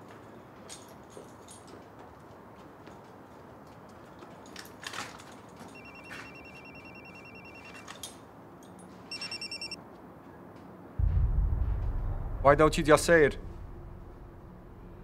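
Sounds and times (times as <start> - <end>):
telephone ringing electronic trill: 5.8 - 7.9, 9.1 - 9.8.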